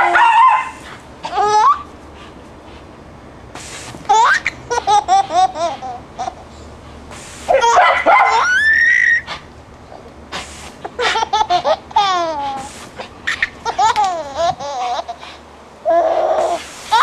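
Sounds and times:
baby squealing: 0.0 - 1.9, 7.5 - 9.4
baby laughing: 1.2 - 1.9, 4.0 - 6.5, 7.5 - 9.4, 10.8 - 17.0.

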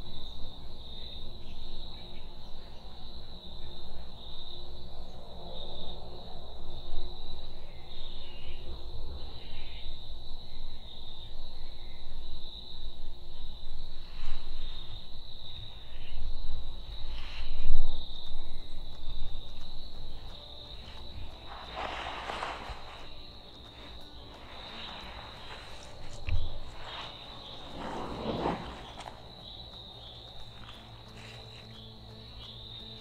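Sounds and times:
crickets trilling: 0.0 - 33.0
faint rustles: 13.8 - 33.0
low rumble: 22.5 - 31.0.

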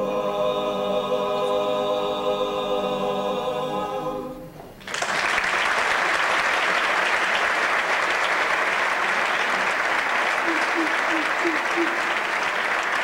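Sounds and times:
men singing a cappella chord: 0.0 - 4.5
audience applause: 4.8 - 13.0.

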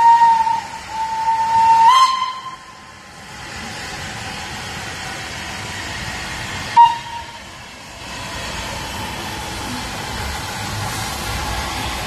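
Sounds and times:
steam locomotive whistle: 0.0 - 2.8, 6.7 - 7.4
train running past: 0.0 - 12.0.

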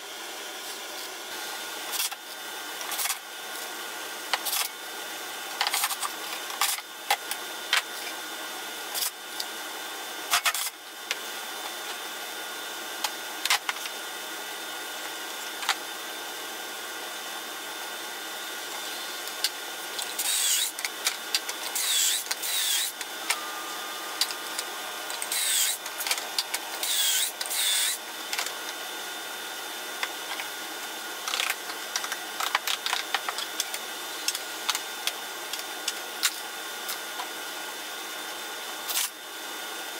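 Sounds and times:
cordless drill whirring: 20.0 - 28.4.

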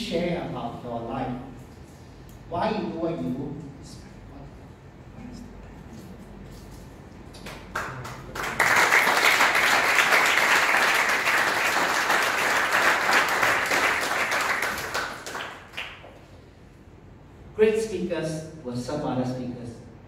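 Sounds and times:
audience applauding: 7.5 - 16.1.

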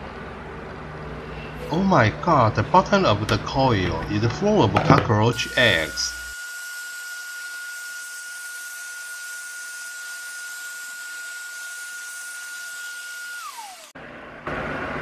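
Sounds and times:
vacuum cleaner whining: 5.1 - 15.0.

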